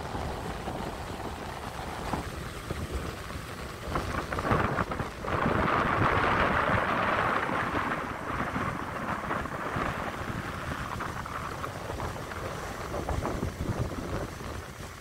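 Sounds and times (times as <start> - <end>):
ocean surf breaking: 0.0 - 15.0
wind buffeting microphone: 0.0 - 15.0.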